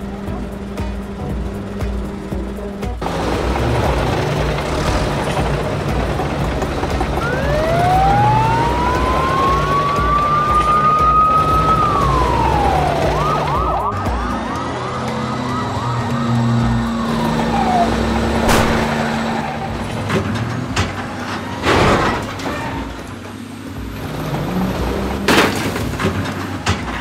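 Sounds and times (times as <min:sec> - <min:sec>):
low engine sound: 0:00.0 - 0:27.0
police siren wail and yelp: 0:07.2 - 0:18.5.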